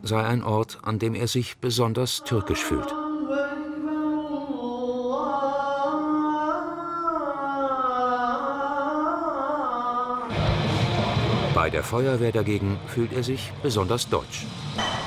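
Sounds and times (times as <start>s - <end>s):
man chanting a prayer: 0.0s - 3.0s.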